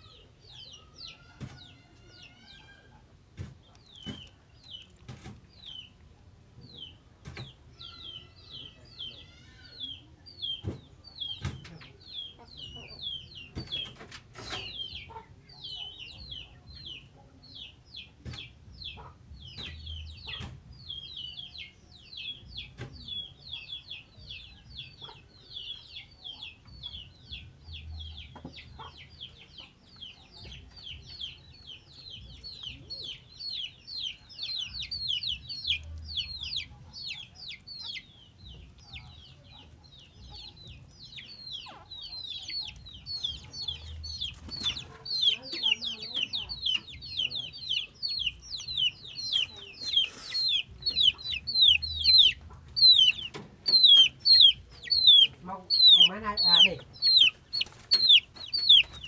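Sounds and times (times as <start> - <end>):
rapid high-pitched peeping: 6.7 - 59.0.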